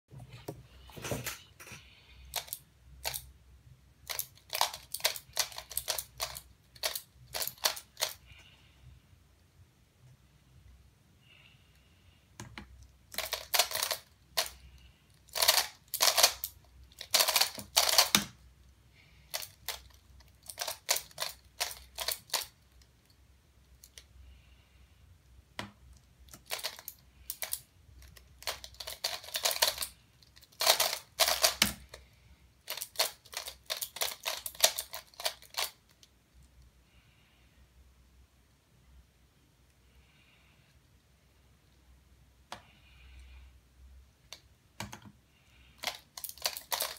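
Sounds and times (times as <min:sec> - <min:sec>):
plastic puzzle clicking: 0:02.3 - 0:03.3, 0:04.1 - 0:08.2, 0:12.4 - 0:14.6, 0:15.2 - 0:18.4, 0:19.3 - 0:22.6, 0:25.6 - 0:32.0, 0:32.6 - 0:36.1, 0:45.8 - 0:46.9.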